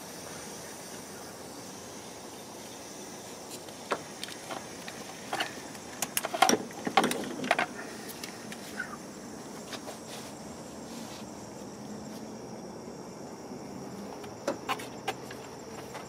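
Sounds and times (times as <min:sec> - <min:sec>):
steady background hum: 0:00.0 - 0:16.0
clicks and clatter of hose coupler: 0:03.9 - 0:08.4.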